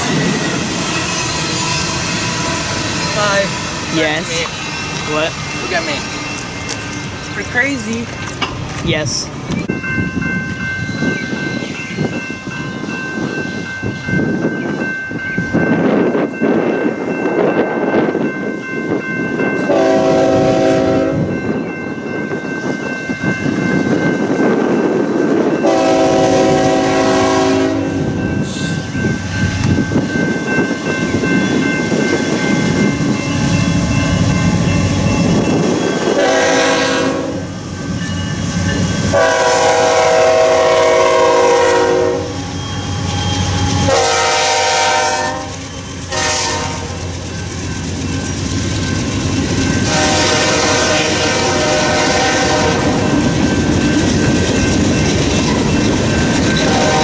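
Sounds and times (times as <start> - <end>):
train wheels clattering on rails: 0.0 - 19.8, 44.9 - 57.0
locomotive air horn blasts: 19.7 - 21.3, 25.6 - 28.2, 36.2 - 37.5, 39.1 - 42.4, 43.9 - 47.0, 49.8 - 53.1, 56.7 - 57.0.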